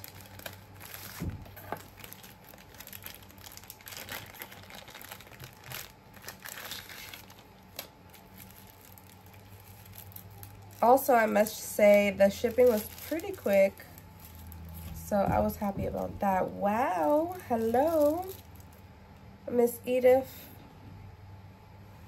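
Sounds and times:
plastic wrapping crinkling: 0.0 - 18.9.

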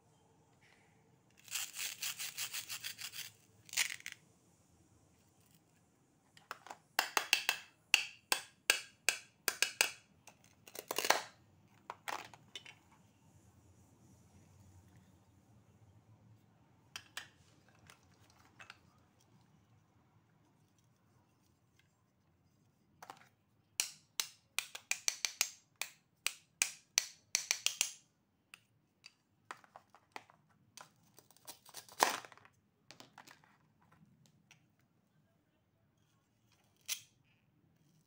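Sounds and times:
plastic toy pieces clicking: 1.4 - 4.2, 6.4 - 11.3, 23.8 - 28.0.

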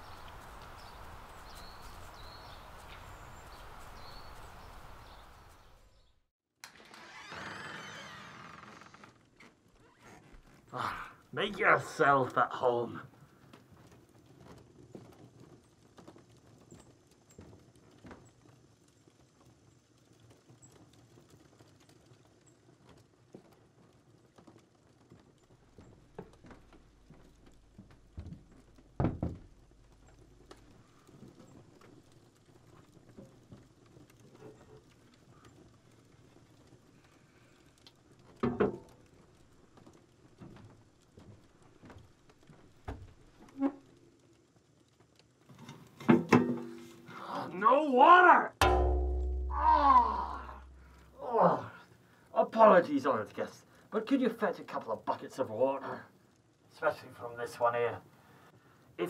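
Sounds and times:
footsteps on wooden floor: 25.8 - 29.5
loud wooden knocks: 28.1 - 29.6, 48.6 - 51.1.

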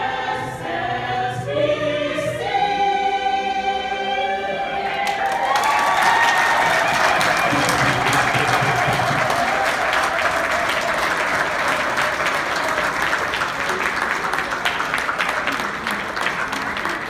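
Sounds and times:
crowd applauding: 5.0 - 17.0.

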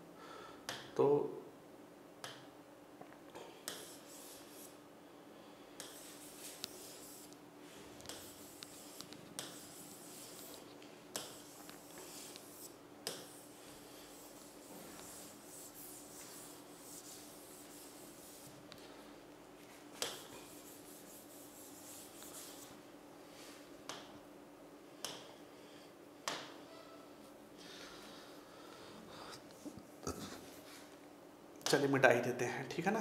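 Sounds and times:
faint steady hum: 0.0 - 33.0
pen rubbing on whiteboard screen: 3.7 - 4.8, 5.8 - 7.4, 8.1 - 18.6, 20.0 - 22.7.

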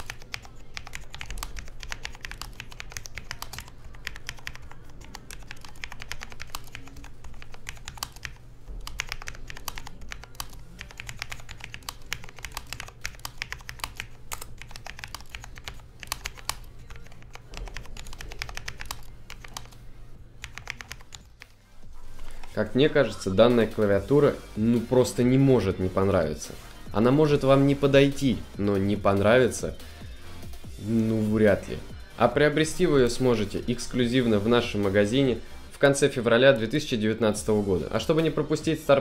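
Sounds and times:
keyboard typing clicks: 0.0 - 19.8, 20.4 - 21.5.

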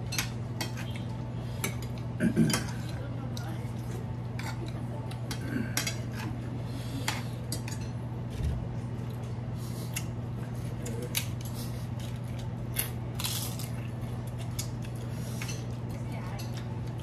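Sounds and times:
steady low hum: 0.0 - 17.0
forks clinking on plates: 0.1 - 3.0, 7.0 - 8.0.

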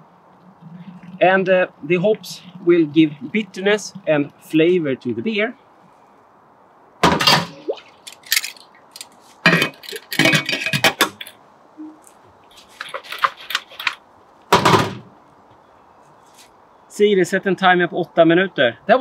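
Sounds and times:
metal lid clinking and clatter: 9.5 - 11.3.

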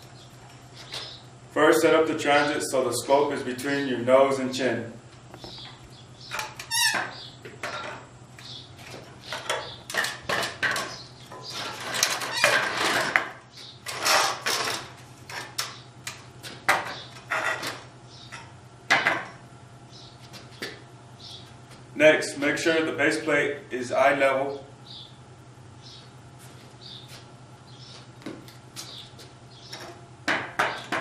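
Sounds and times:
steady low hum: 0.0 - 31.0
tripod legs scraping on concrete: 6.3 - 15.6.

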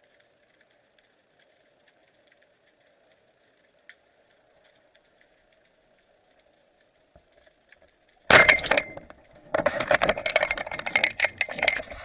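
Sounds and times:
speargun firing underwater: 8.3 - 9.1
clatter of clicks and knocks: 8.3 - 12.0.

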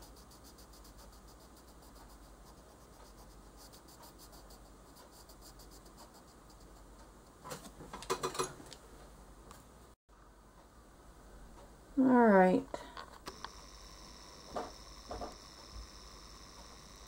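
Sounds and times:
pencil shading on paper: 0.0 - 7.1.

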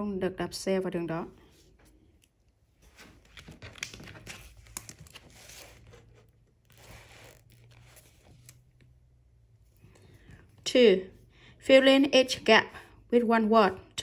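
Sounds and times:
book pages rustling: 1.5 - 10.4.

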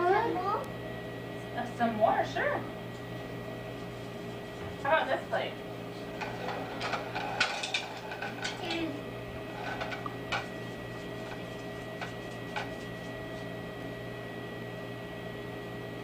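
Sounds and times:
steady hum: 0.0 - 16.0
kitchen items clicking and tapping: 6.2 - 8.9, 9.6 - 12.9.

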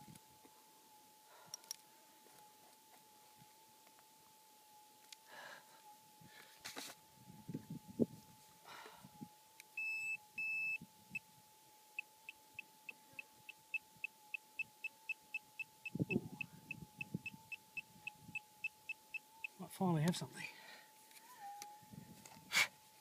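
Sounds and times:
metal detector high beeps: 9.8 - 10.8, 12.6 - 19.6
metal detector threshold tone: 9.8 - 10.8.

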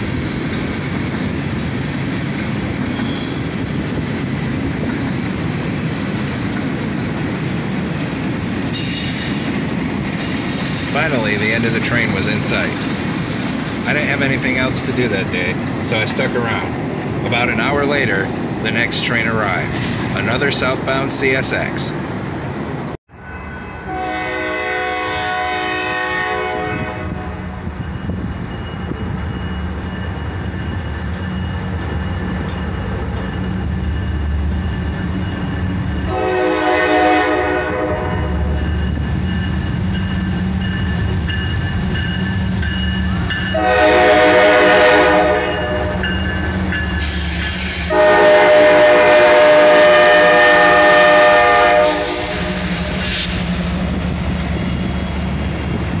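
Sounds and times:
train air horn blasts: 23.2 - 27.6, 36.1 - 38.5, 43.5 - 46.1, 47.0 - 53.4.

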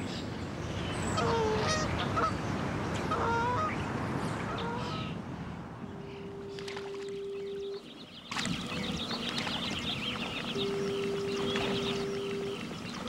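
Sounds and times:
steady low tone: 5.8 - 13.0
geese honking: 6.2 - 13.0.

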